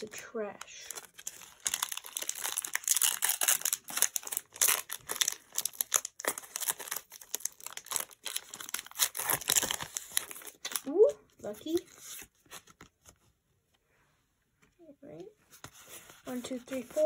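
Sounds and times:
foil wrapper crinkling: 0.9 - 10.9.

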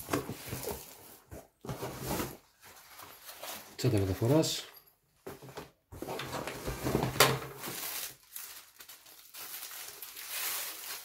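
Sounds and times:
fabric bag rustling and crinkling: 6.3 - 11.0.

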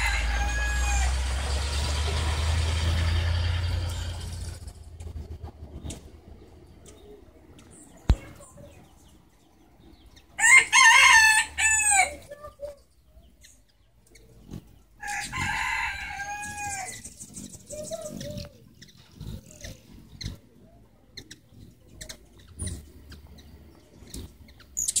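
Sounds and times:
rooster crowing: 0.0 - 2.5, 10.4 - 12.2, 15.0 - 17.0.

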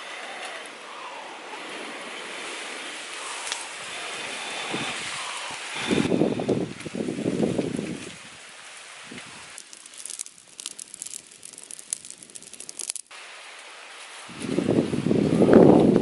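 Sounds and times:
person blowing on embers: 3.1 - 8.1, 8.9 - 13.1
twigs crackling and popping: 8.8 - 13.7.

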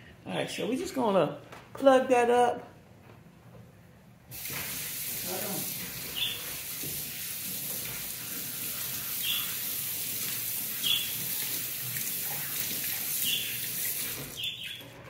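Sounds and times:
water running from a tap: 4.3 - 14.5.

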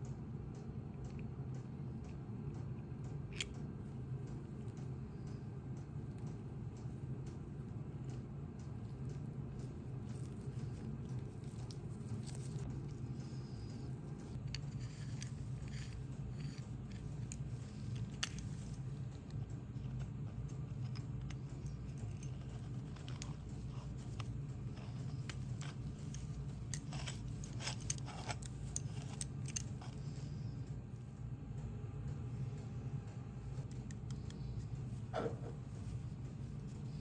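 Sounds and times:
steady low hum: 0.0 - 37.0
small metal tool parts clicking: 14.4 - 18.8, 20.7 - 30.2.

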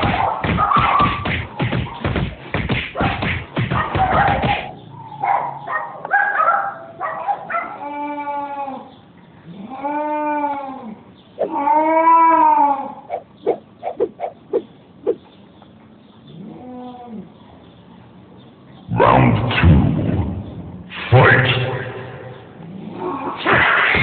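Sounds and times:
cats yowling: 3.8 - 13.3, 16.3 - 17.4
cat growling: 7.8 - 13.2, 16.3 - 17.4, 22.6 - 24.0.

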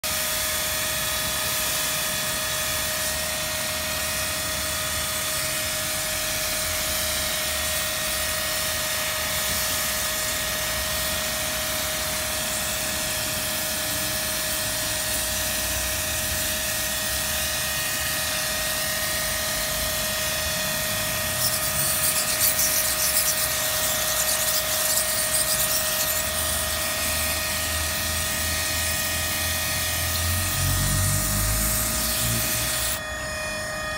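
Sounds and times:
pressure washer motor whine: 0.0 - 33.9
water jet hissing: 20.6 - 28.4.

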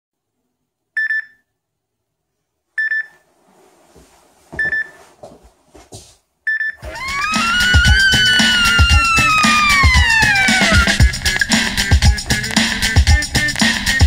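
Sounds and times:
bedding rustling and thumping: 3.3 - 6.2.

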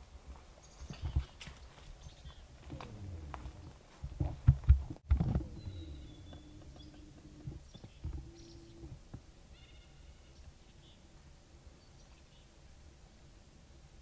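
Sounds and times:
faint low tone: 2.7 - 4.4, 5.1 - 9.0.

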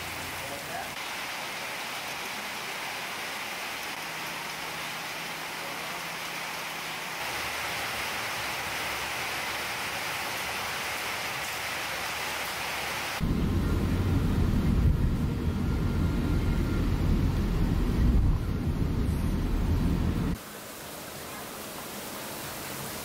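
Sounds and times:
heavy rain falling: 0.0 - 23.0
vehicle driving heard from inside: 13.2 - 20.4.

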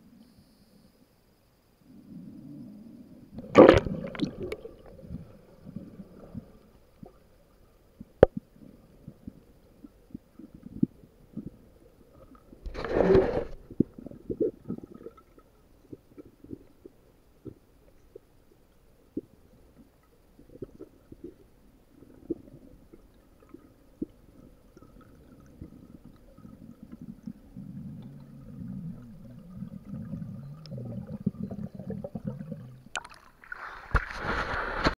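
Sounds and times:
muffled underwater rumbling: 2.0 - 33.0
loud water splashing: 3.5 - 4.5.

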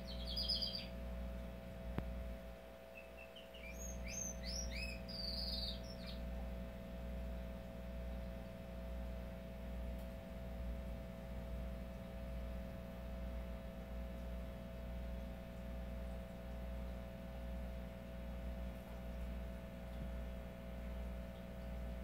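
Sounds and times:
canary singing: 0.0 - 1.0, 2.9 - 6.3
steady low hum: 0.0 - 22.0.

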